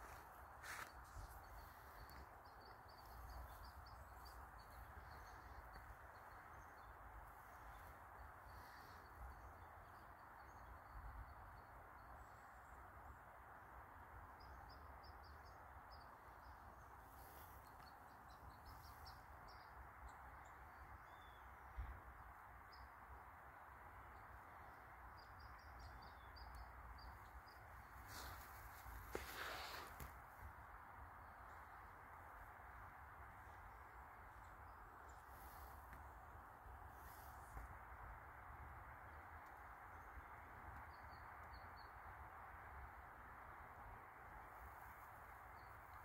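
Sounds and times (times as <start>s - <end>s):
steady low hiss: 0.0s - 46.0s.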